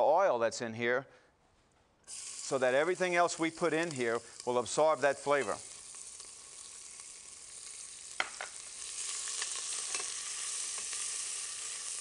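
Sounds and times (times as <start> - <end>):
onions sizzling in fat: 2.1 - 12.0
spoon clicking and scraping pot: 9.5 - 10.2.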